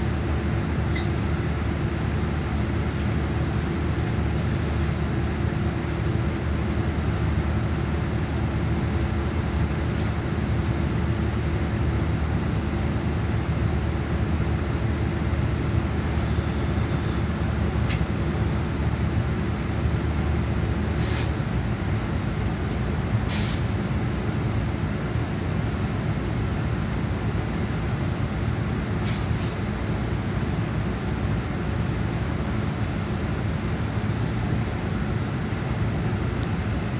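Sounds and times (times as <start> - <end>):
diesel engine idling: 0.0 - 36.9
air brake hisses: 21.0 - 21.4, 23.3 - 23.8, 29.0 - 29.6.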